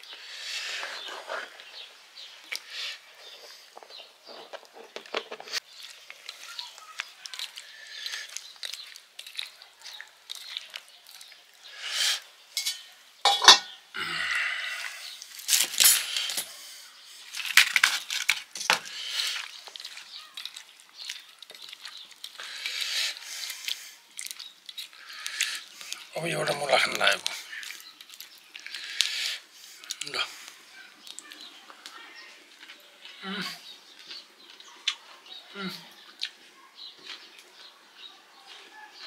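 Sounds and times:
wet squelching of hand mixing: 5.6 - 11.7, 19.0 - 29.0
fingers clinking metal bowl: 12.6 - 13.8.

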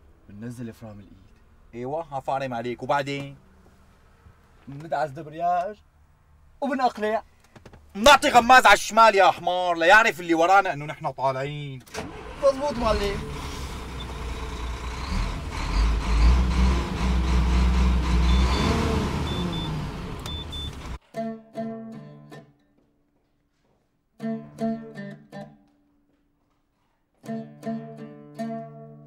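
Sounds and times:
truck engine running: 12.0 - 21.0
short high beeps: 19.3 - 20.8
oud plucked: 19.4 - 22.6, 24.2 - 25.7, 27.2 - 29.0.

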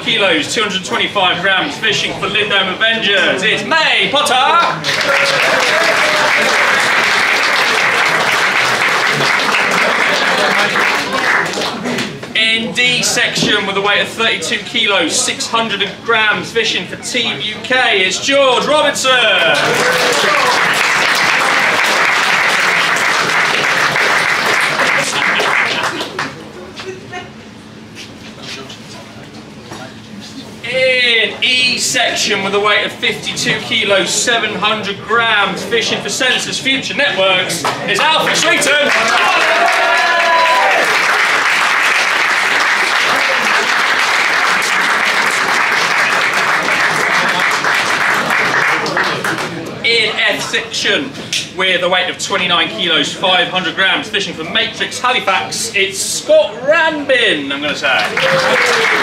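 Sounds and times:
roomful of people applauding: 4.5 - 12.3, 19.3 - 26.5, 37.6 - 50.1, 57.8 - 59.0.

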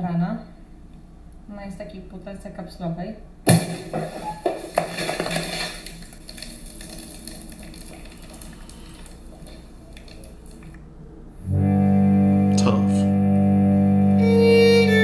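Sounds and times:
fizzing and dripping: 3.6 - 10.8.

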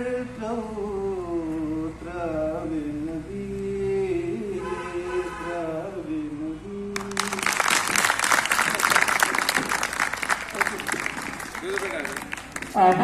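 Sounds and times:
crowd applause: 7.0 - 13.0.

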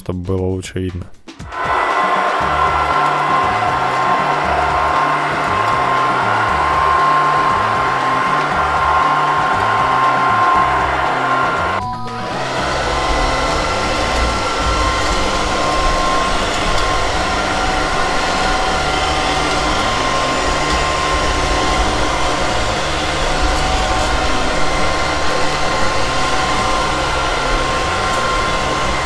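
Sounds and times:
high-pitched whine: 1.4 - 29.0
robot vacuum whirring: 1.4 - 29.0.

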